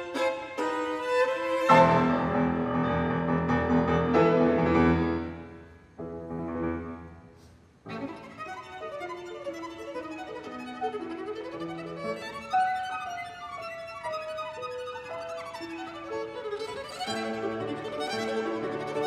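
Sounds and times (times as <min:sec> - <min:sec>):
violin playing: 0:00.0 - 0:02.8, 0:07.9 - 0:19.0
piano chords: 0:00.0 - 0:07.2.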